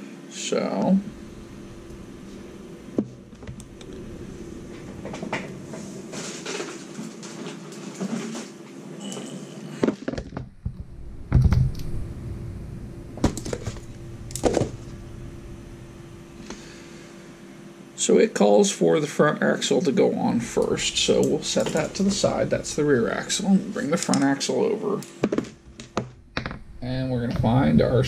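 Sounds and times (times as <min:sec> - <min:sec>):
steady low hum: 0:00.0 - 0:28.0
plastic and metal parts clattering: 0:09.2 - 0:10.5.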